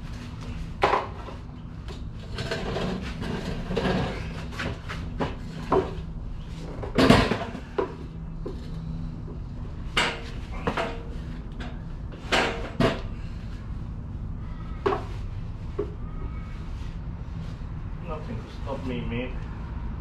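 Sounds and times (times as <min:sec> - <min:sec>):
metal clanks and knocks: 0:00.8 - 0:08.6, 0:09.8 - 0:13.2.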